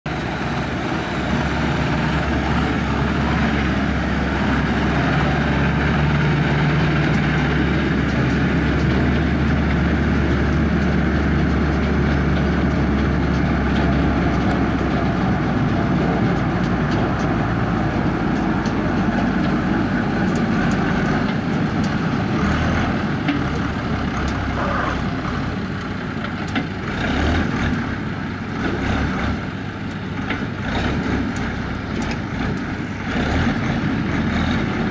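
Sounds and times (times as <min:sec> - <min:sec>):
tractor diesel engines under load: 0:00.1 - 0:34.9
harvesting machinery knocks and rattles: 0:02.5 - 0:34.9.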